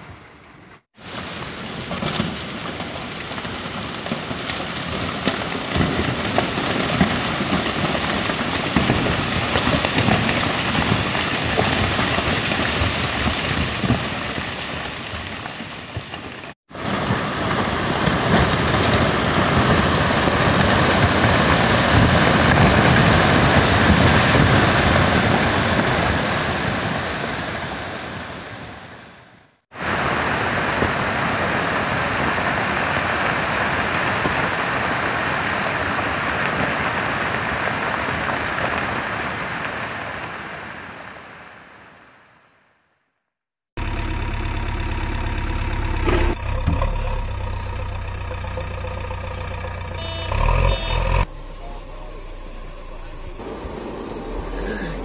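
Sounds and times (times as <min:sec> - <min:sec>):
landslide of stones rushing: 0:01.0 - 0:28.0, 0:43.8 - 0:55.0.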